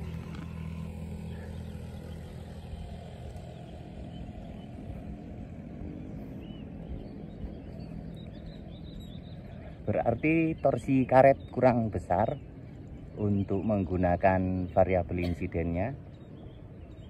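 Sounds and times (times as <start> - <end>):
wind rumbling on microphone: 0.0 - 14.9
faint chirp: 6.0 - 11.6.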